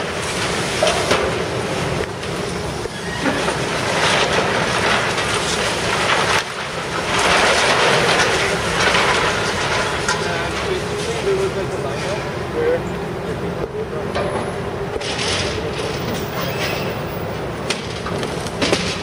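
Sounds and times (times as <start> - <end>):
excavator breaking concrete: 3.1 - 12.3, 14.2 - 19.0.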